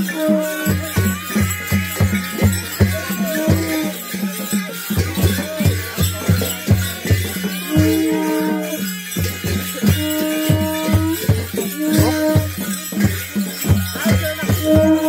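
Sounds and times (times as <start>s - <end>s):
drum beaten in steady rhythm: 0.0s - 15.0s
jingling: 0.0s - 15.0s.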